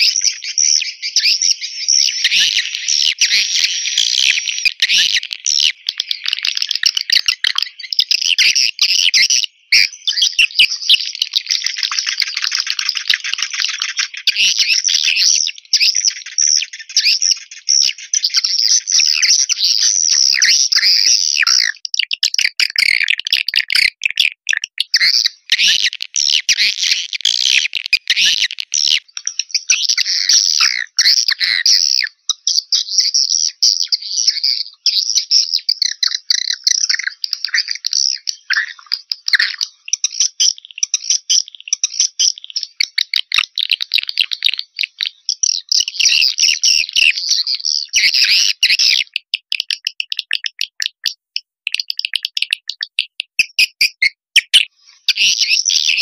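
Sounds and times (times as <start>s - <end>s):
swiftlet chirps and twitters: 51.7s - 56.0s.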